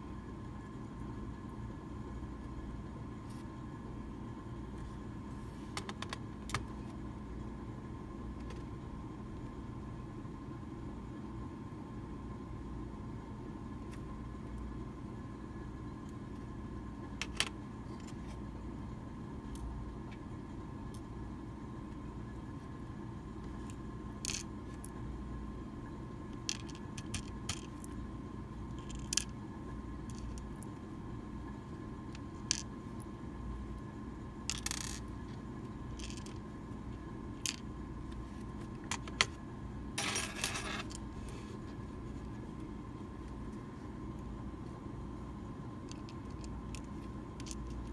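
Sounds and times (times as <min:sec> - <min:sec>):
steady hum: 0:00.0 - 0:47.9
small metal parts clicking: 0:34.5 - 0:35.1
metal parts rattling: 0:40.0 - 0:41.0.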